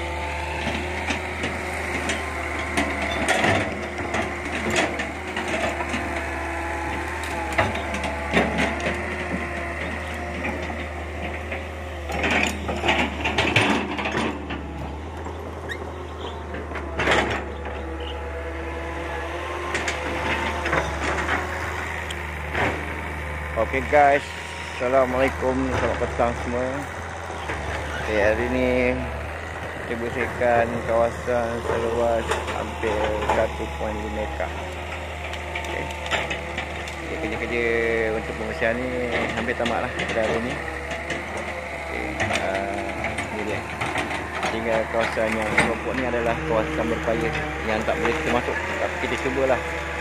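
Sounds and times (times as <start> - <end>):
excavator diesel engine running: 0.0 - 50.0
branches cracking and snapping: 0.4 - 10.8, 30.8 - 50.0.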